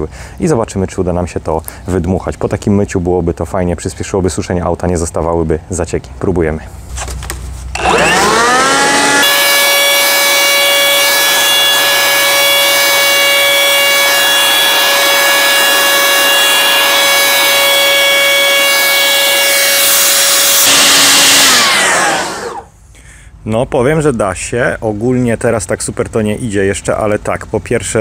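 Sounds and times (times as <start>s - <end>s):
leaf blower whining: 7.7s - 22.8s.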